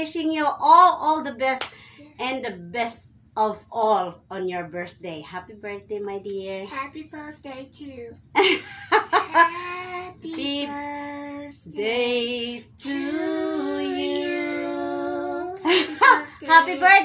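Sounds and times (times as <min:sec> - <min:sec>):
woman singing: 0:06.7 - 0:08.2, 0:09.2 - 0:17.0.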